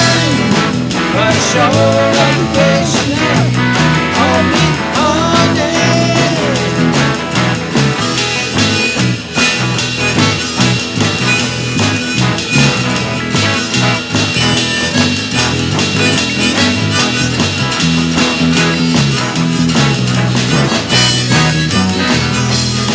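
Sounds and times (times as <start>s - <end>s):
steady drum beat: 0.0s - 22.9s
strummed guitars: 0.0s - 22.9s
harmonica solo: 5.8s - 22.9s.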